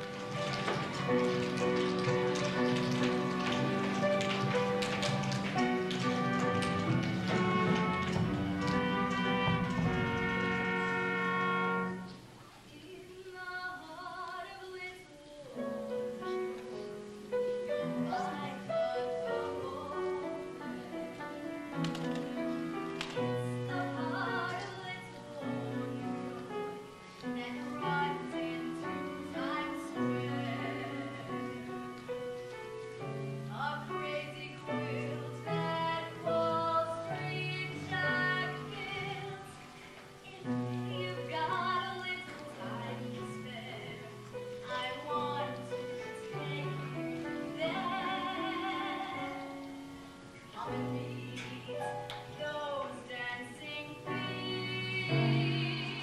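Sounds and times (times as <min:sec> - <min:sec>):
instrumental accompaniment: 0:00.0 - 0:12.4.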